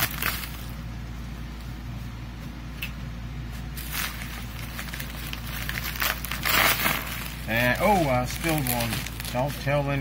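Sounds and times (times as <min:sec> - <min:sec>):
bubble wrap crinkling: 0:00.0 - 0:00.8, 0:03.5 - 0:10.0
steady low hum: 0:00.0 - 0:10.0.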